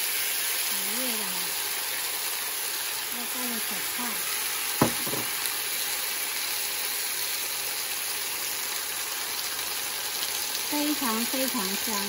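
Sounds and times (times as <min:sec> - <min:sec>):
meat sizzling on a hot plate: 0:00.0 - 0:12.0
sharp knock: 0:04.8 - 0:05.4.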